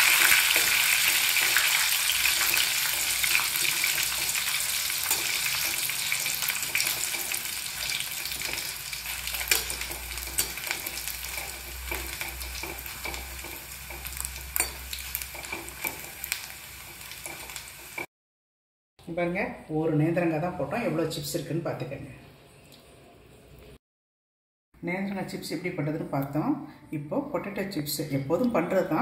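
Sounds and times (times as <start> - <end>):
chips sizzling in hot oil: 0.0 - 18.1.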